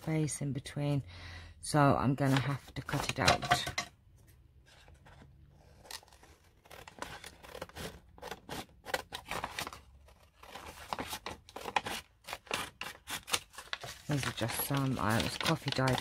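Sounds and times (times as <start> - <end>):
scissors cutting paper: 5.8 - 16.0.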